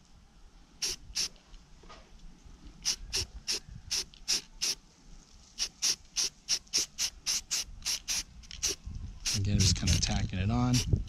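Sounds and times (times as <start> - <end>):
spray paint can hissing: 0.8 - 1.3, 2.8 - 4.8, 5.6 - 10.1.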